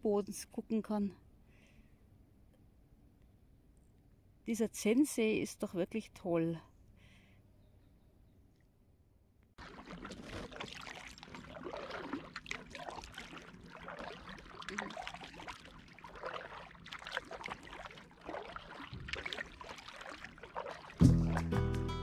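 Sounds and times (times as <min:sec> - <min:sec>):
paddle strokes splashing water: 0:09.6 - 0:21.8.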